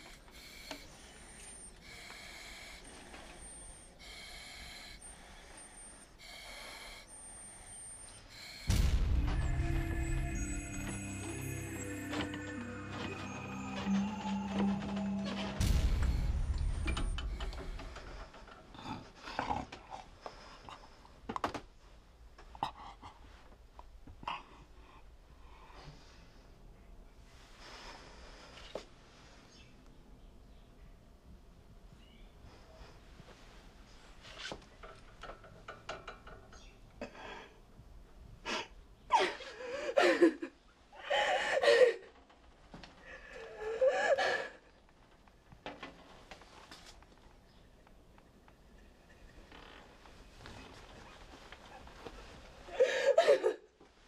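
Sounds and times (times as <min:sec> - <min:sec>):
man breathing under oxygen mask: 0:00.0 - 0:08.8
low rumble: 0:08.7 - 0:18.3.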